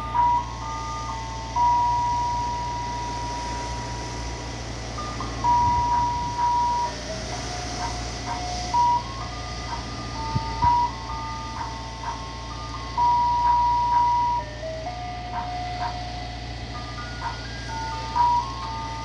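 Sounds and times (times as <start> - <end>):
ice cream truck chime jingle: 0.0 - 19.0
truck engine idling hum: 0.0 - 19.0.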